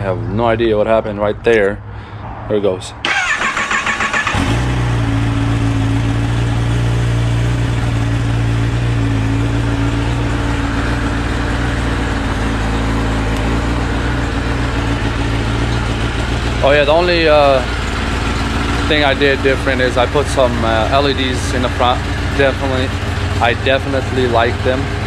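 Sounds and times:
motorcycle engine idling: 3.1 - 25.0.

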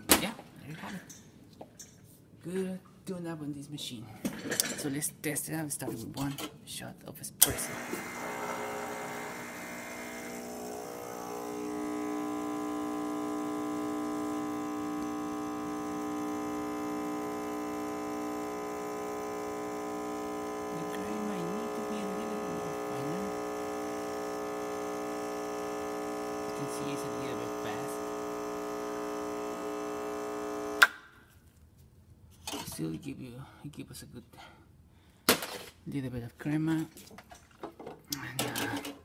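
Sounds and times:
espresso machine pump humming: 7.4 - 30.9.

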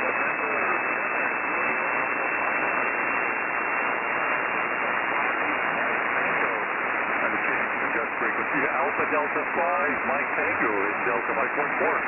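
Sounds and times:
faint garbled radio voice: 0.0 - 1.6, 5.9 - 12.0
radio static hiss: 0.0 - 12.0.

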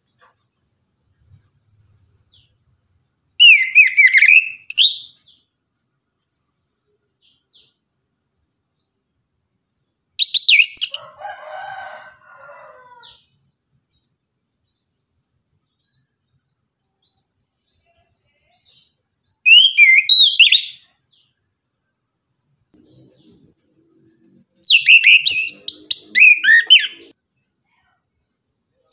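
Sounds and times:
lower-pitched bird call: 3.4 - 5.0, 19.5 - 20.9, 24.6 - 27.1.

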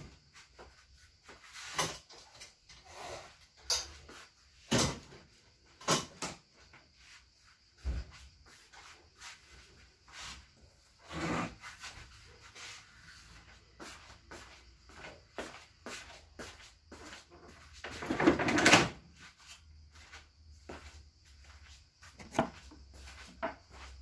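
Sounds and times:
long scrape: 11.0 - 13.2
objects knocking and bumping: 22.2 - 22.7.

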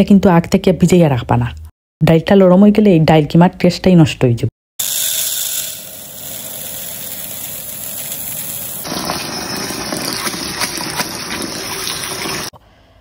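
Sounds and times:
lentils pouring into colander: 4.8 - 12.5
tap water running: 4.8 - 12.6.

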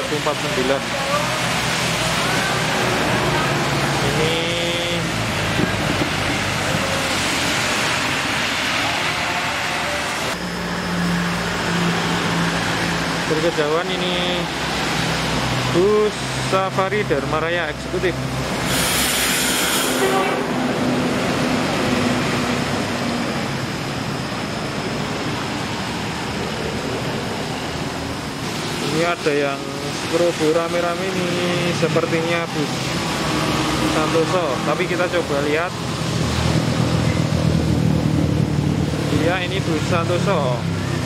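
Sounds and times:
tyres hissing on wet road: 0.0 - 16.8, 17.8 - 41.0
heavy rain: 0.1 - 10.4
heavy rain hissing: 18.4 - 21.8.

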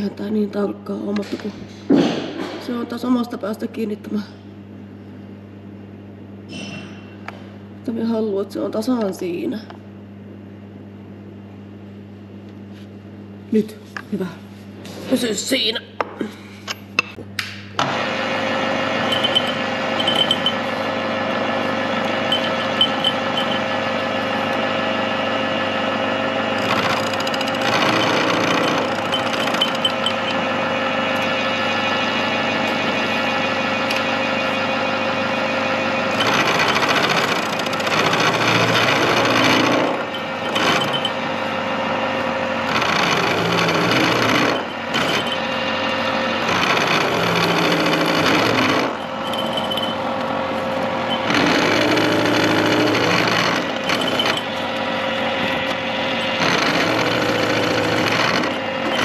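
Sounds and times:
milling machine whine: 17.0 - 59.0
harsh metal cutting: 17.9 - 59.0.

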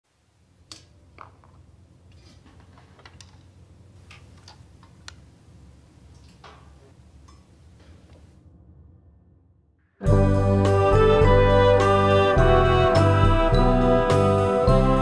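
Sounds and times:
low room hum: 0.1 - 11.1.

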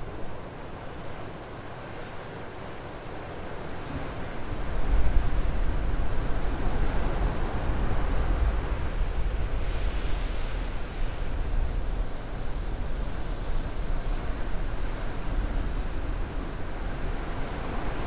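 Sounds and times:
wind rumbling on microphone: 3.8 - 18.0.

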